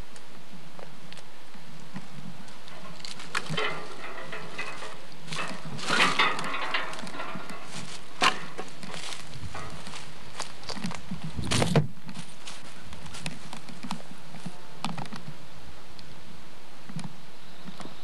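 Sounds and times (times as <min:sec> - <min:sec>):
footsteps on leafy path: 0:00.0 - 0:15.4
brushing rustle: 0:02.2 - 0:14.6.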